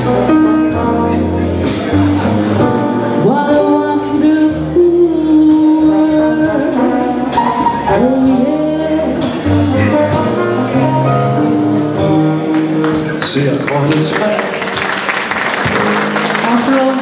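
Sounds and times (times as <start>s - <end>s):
swing jazz band playing: 0.0s - 17.0s
woman singing: 3.1s - 12.2s.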